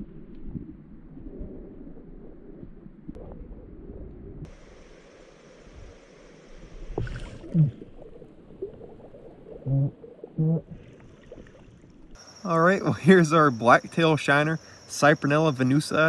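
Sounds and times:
water sloshing: 0:06.8 - 0:12.2
short low-pitched sounds: 0:09.5 - 0:11.0.

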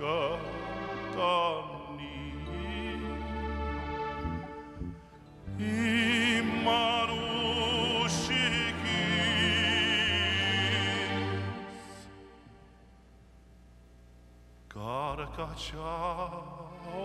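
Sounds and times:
man singing with vibrato: 0:00.0 - 0:03.7, 0:05.5 - 0:12.0, 0:14.7 - 0:17.0
instrumental accompaniment: 0:02.2 - 0:11.6.

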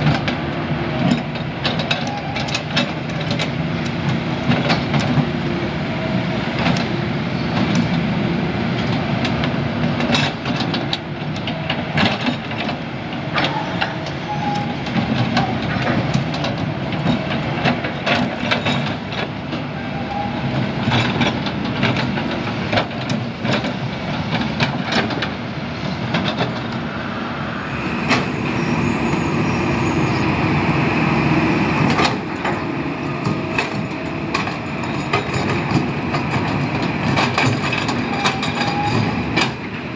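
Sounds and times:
diesel engines running: 0:00.0 - 0:39.9
digging knocks and clanks: 0:33.2 - 0:39.6.

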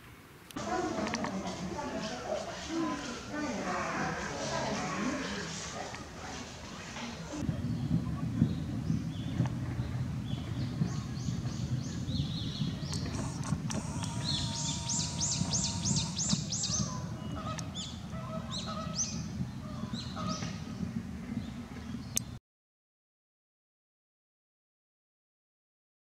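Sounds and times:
songbirds calling: 0:07.4 - 0:22.4.

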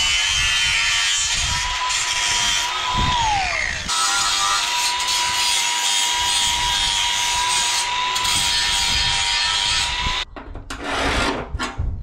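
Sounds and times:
angle grinder grinding sheet steel: 0:00.0 - 0:10.2
short scraping noise: 0:10.7 - 0:11.9.

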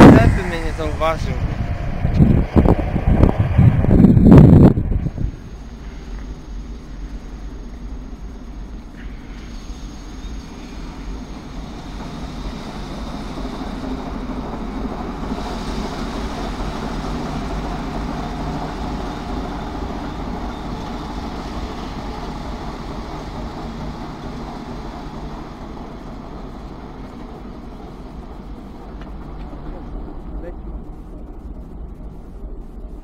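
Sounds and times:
diesel locomotive engine running: 0:00.0 - 0:33.0
wheel-on-rail noise: 0:00.0 - 0:33.0.

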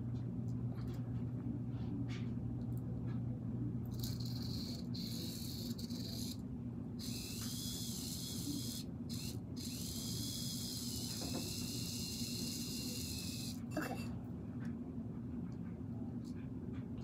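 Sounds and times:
toy car motor whirring: 0:03.9 - 0:06.4, 0:07.0 - 0:13.6.

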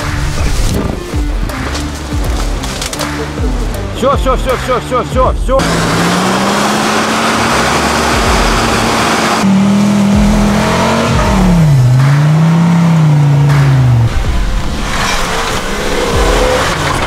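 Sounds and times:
buggy engine: 0:00.0 - 0:17.0
off-road engines revving: 0:00.0 - 0:17.0
spinning tyres flinging mud: 0:05.6 - 0:17.0.

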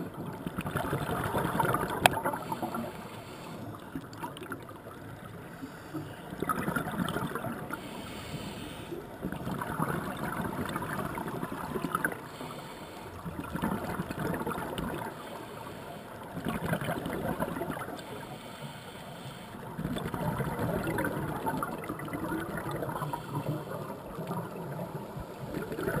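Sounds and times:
underwater bubbles gurgling: 0:00.0 - 0:26.0
regulator inhale hiss: 0:02.3 - 0:03.8, 0:05.4 - 0:06.2, 0:07.7 - 0:09.1, 0:12.2 - 0:13.2, 0:15.2 - 0:16.2, 0:18.0 - 0:19.7.

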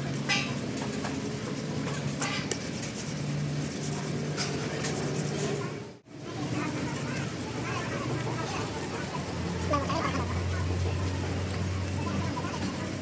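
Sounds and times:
sandpaper rubbing on metal: 0:00.0 - 0:06.0.

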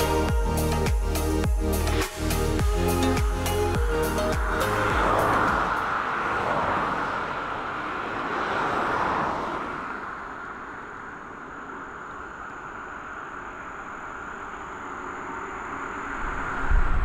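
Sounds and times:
jet aircraft rushing hum: 0:00.0 - 0:17.0
faint high whine: 0:10.2 - 0:17.0.

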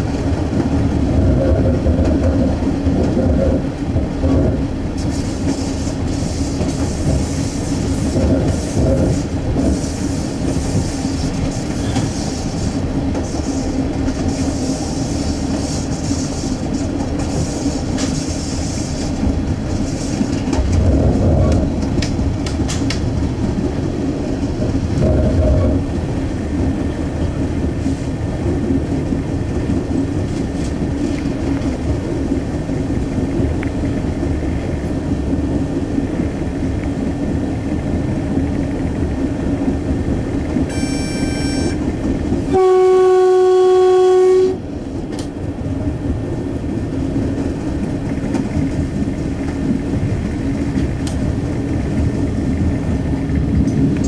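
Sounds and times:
diesel railcar rumbling: 0:00.0 - 0:54.0
train horn blast: 0:40.7 - 0:41.8, 0:42.5 - 0:44.7.

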